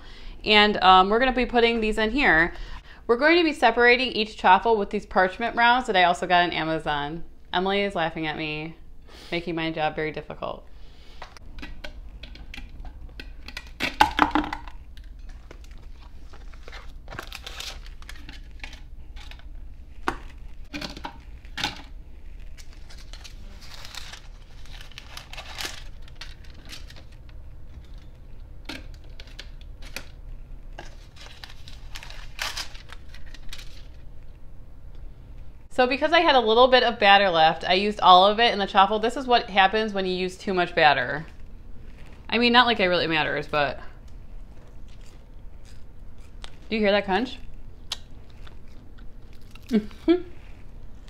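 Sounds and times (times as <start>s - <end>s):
paper rustling and crinkling: 15.2s - 28.2s, 28.9s - 34.1s.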